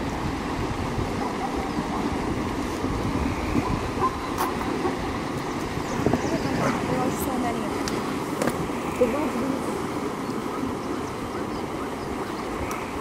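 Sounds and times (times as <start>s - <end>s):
hooves splashing through river: 0.0s - 13.0s
water churning: 0.0s - 13.0s.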